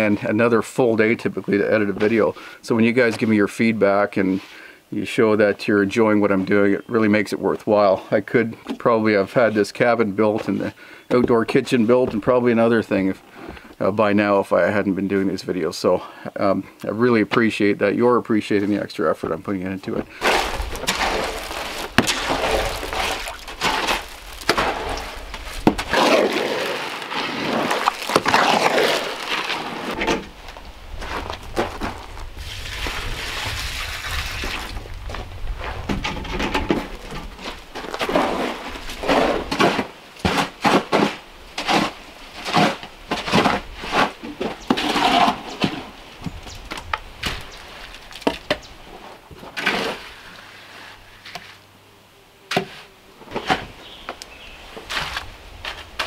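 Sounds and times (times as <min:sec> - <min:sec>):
hoe scraping wet mortar: 0:19.2 - 0:34.8, 0:35.6 - 0:46.0, 0:47.2 - 0:51.6, 0:52.5 - 0:56.0
water pouring from bucket: 0:20.2 - 0:30.0, 0:32.4 - 0:34.9.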